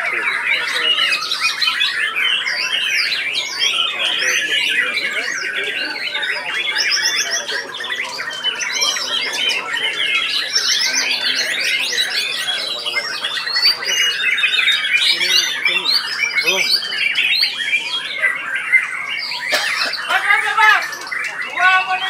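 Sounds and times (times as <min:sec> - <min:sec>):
birds singing: 0:00.0 - 0:22.0.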